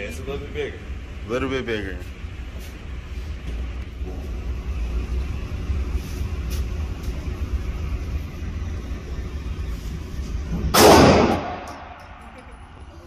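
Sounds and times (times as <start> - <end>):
low rumble background noise: 0.0 - 13.0
pistol shot indoors: 10.7 - 12.3.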